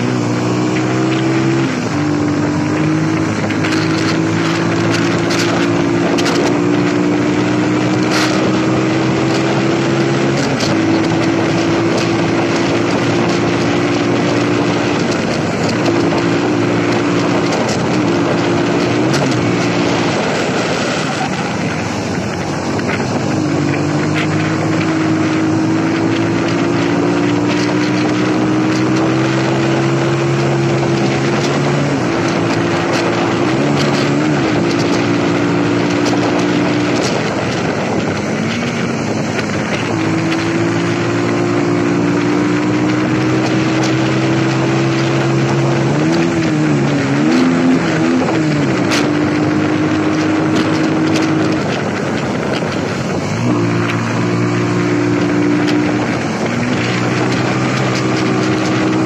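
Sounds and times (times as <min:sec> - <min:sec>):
motorcycle engine running: 0:00.0 - 0:59.0
wind rushing over microphone: 0:00.0 - 0:59.0.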